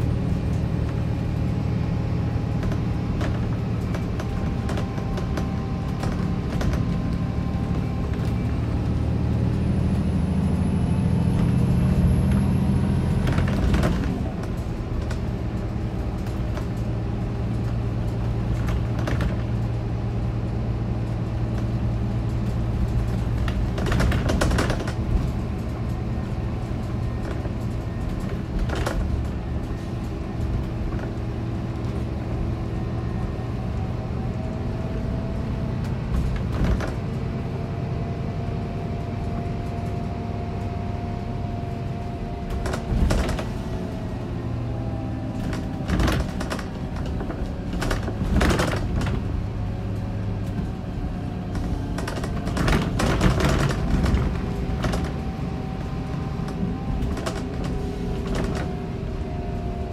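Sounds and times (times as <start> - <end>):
bus diesel engine drone: 0.0 - 59.9
knocks and rattles: 13.1 - 20.1, 21.2 - 32.3, 36.1 - 37.2, 42.5 - 43.8, 45.3 - 50.8, 51.5 - 55.8, 56.5 - 58.8.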